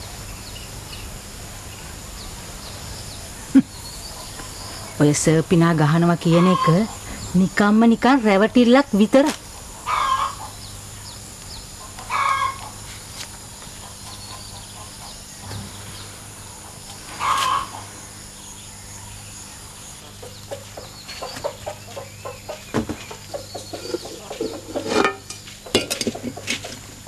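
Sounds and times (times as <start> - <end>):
chicken clucking: 17.2 - 17.9, 20.0 - 25.0
dishes clinking and scraping: 23.7 - 26.8.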